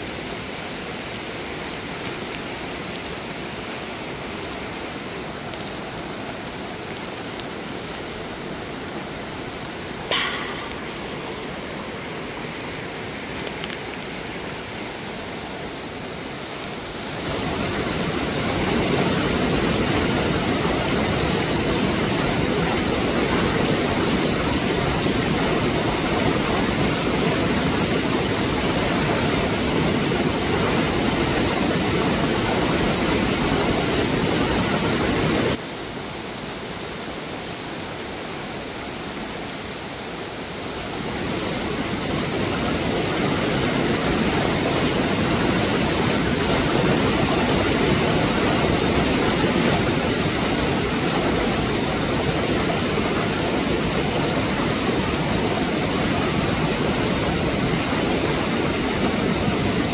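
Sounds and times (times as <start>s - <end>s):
stream rushing over rocks: 0.0s - 59.9s.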